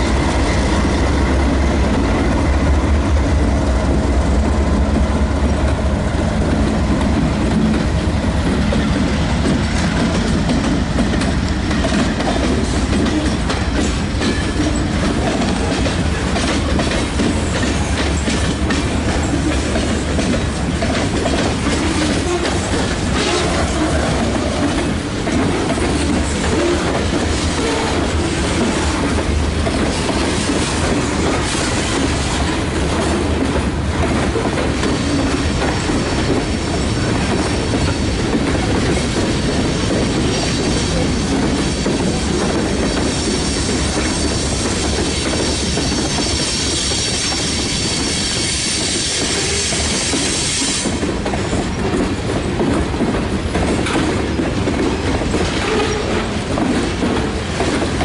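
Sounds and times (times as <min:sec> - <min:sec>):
wheels clacking over rail joints: 0:00.0 - 0:46.4, 0:48.8 - 0:58.0
train wheels rumbling on rail: 0:00.0 - 0:58.0.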